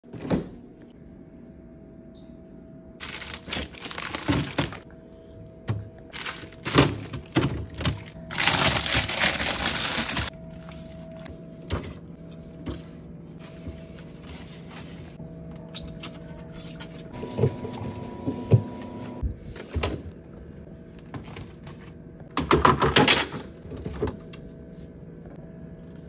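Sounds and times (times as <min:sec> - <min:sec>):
faint hum: 0:00.1 - 0:22.4, 0:23.4 - 0:26.0
containers and bags rustling: 0:03.0 - 0:04.8, 0:05.7 - 0:10.3.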